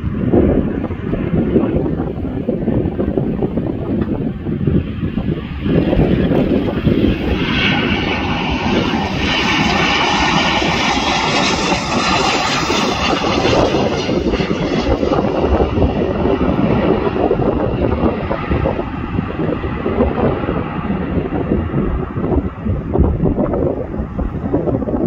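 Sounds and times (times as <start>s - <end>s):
jet engines rushing: 0.0s - 25.0s.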